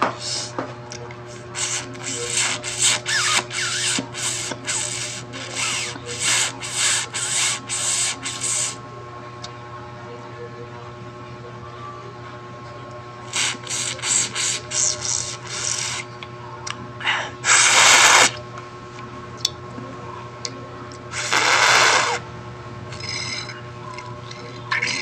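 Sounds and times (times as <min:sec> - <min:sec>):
slurping through a straw: 0:01.5 - 0:08.8, 0:13.3 - 0:16.1, 0:17.5 - 0:18.4, 0:21.2 - 0:22.2.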